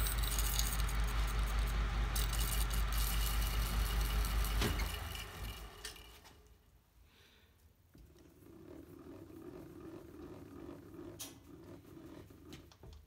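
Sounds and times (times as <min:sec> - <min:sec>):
milling machine motor hum: 0:00.0 - 0:06.3
machine knock and wind down: 0:00.0 - 0:06.4
saw metallic rattle: 0:00.0 - 0:06.4.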